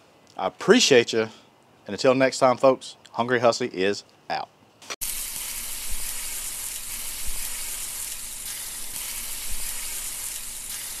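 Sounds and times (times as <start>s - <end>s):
frying sizzle with pops: 5.0s - 11.0s.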